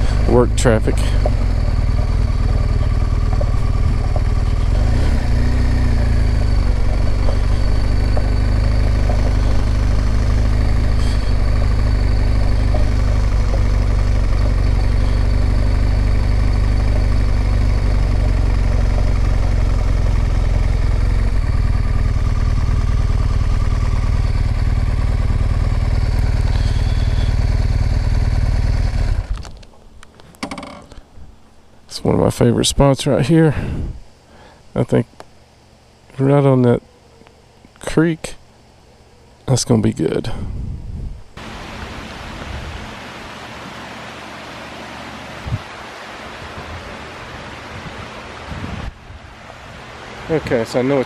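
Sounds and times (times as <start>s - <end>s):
motorcycle engine running at low revs: 0.0s - 29.8s.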